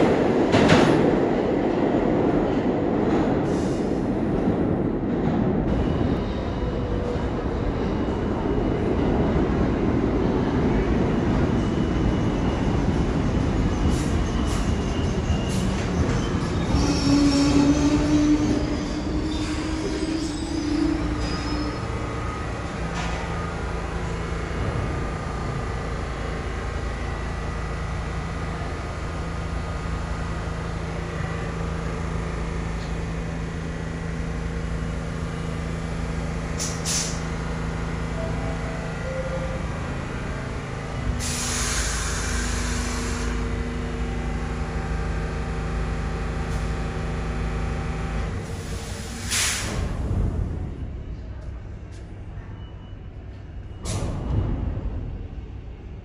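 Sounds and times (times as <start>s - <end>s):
subway train rumble and hum: 0.0s - 56.0s
air hissing: 41.2s - 43.4s.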